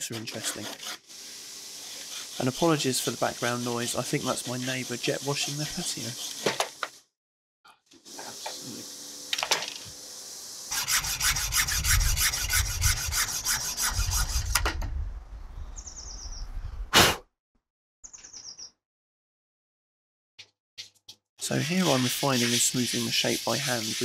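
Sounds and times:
hacksaw rasping strokes: 0.0 - 6.4, 10.7 - 14.6, 21.5 - 24.0.

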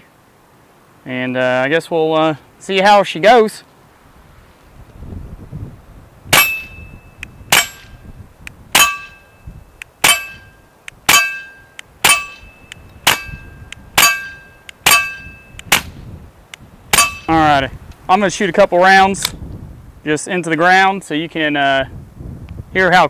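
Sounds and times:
short metallic ring: 6.4 - 8.0, 8.8 - 15.6, 17.0 - 17.3
suppressed pistol shots: 14.0 - 16.0.

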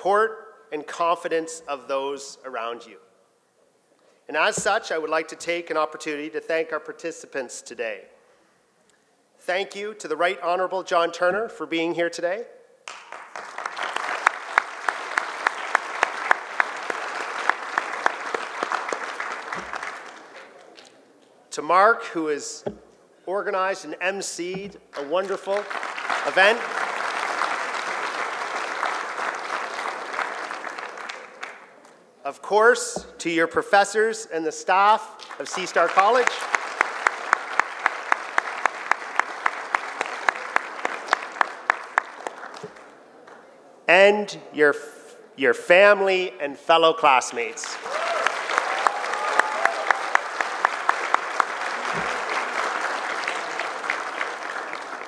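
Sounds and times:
close sharp hand claps: 12.8 - 21.0, 35.2 - 43.4, 47.7 - 55.0
audience applauding: 12.9 - 20.9, 24.9 - 31.6, 35.5 - 42.9, 47.7 - 55.0.

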